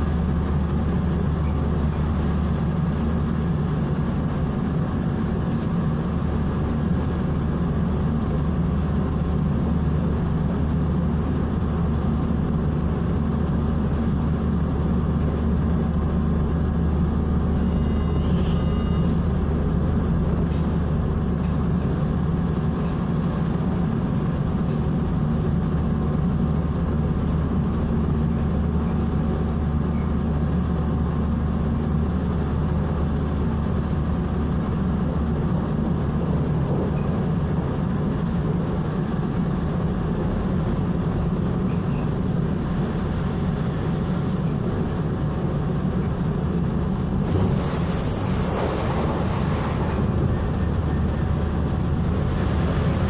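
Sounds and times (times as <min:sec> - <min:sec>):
train wheels rumbling on rail: 0:00.0 - 0:53.0
low hum: 0:41.3 - 0:53.0
rushing hiss: 0:42.4 - 0:53.0.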